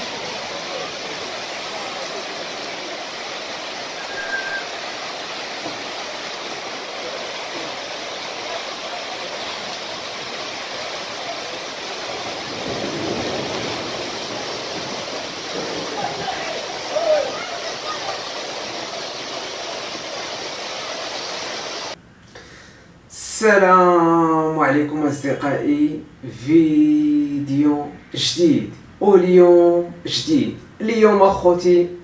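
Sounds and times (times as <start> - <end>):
floodwater rushing: 0.0 - 22.0.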